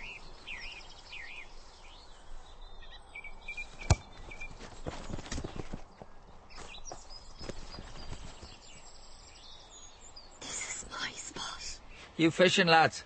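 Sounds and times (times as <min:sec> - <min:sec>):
birds chirping: 0:00.0 - 0:13.0
steady outdoor hiss: 0:00.0 - 0:13.0
football kicked with thud: 0:03.8 - 0:05.7.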